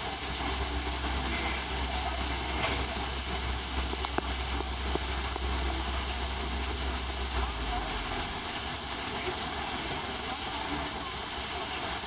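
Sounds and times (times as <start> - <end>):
constant high tone: 0.0 - 12.0
even hiss: 0.0 - 12.0
low rumble: 0.6 - 9.0.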